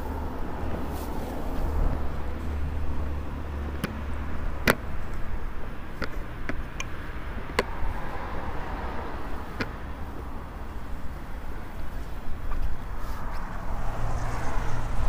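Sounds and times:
low city rumble: 0.0 - 15.0.

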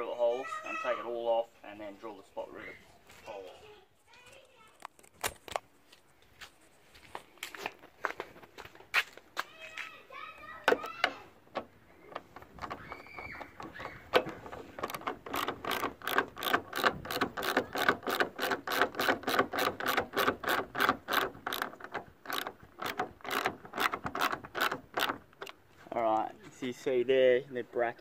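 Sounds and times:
socket ratchet clicking: 11.5 - 25.6.

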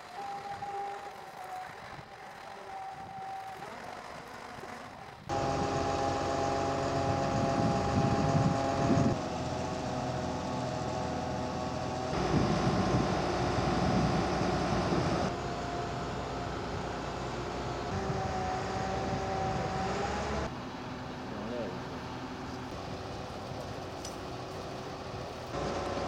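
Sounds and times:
crane diesel engine running: 0.0 - 26.0.

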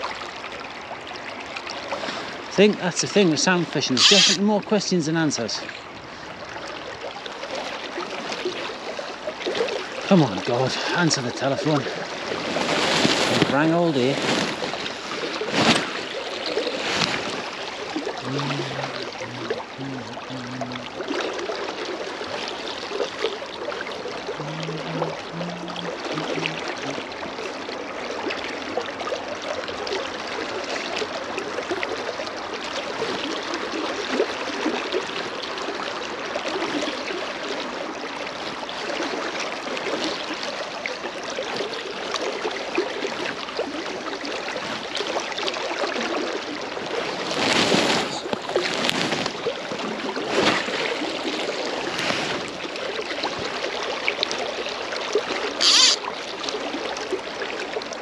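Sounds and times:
river water rushing: 0.0 - 58.0
fishing line swishing: 4.0 - 4.4, 55.5 - 56.1.

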